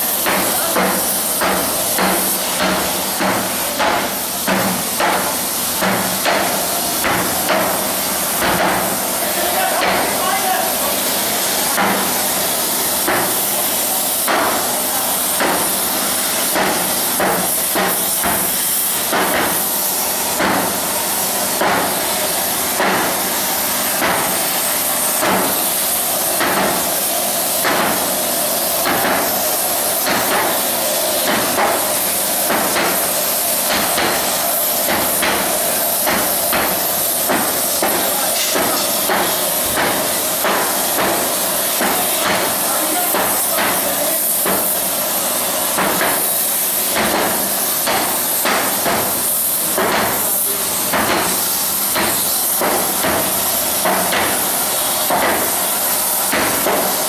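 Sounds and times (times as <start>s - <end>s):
gas torches hissing: 0.0s - 57.0s
hammers striking steel plate: 0.2s - 9.0s, 14.2s - 14.7s, 15.4s - 15.7s, 16.4s - 18.5s, 19.1s - 19.6s, 20.4s - 20.8s, 21.5s - 22.0s, 22.8s - 23.2s, 24.0s - 24.5s, 26.4s - 26.9s, 27.6s - 28.0s, 30.0s - 30.6s, 31.2s - 44.7s, 45.8s - 46.2s, 46.9s - 54.4s, 55.1s - 55.5s, 56.2s - 57.0s.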